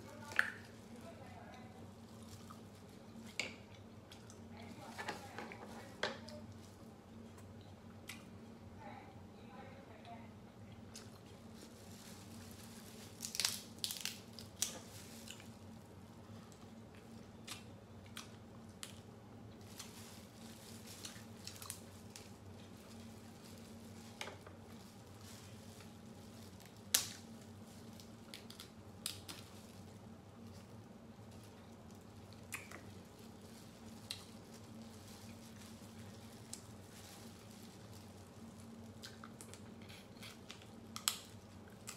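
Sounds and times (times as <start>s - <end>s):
soft squishing of meat: 0.0s - 8.6s, 10.5s - 41.9s
crab shells cracking: 13.2s - 15.5s, 26.6s - 29.6s, 38.7s - 41.9s.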